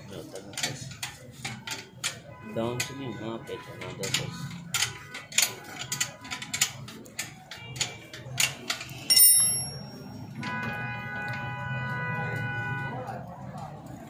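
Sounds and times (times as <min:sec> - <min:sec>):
spanner clanging on concrete: 0:04.0 - 0:10.4.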